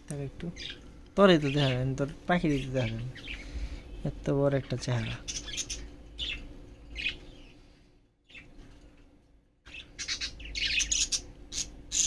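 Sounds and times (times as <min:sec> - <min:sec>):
budgerigars chirping: 0:00.6 - 0:00.8, 0:02.5 - 0:03.7, 0:05.0 - 0:07.5, 0:09.7 - 0:12.0.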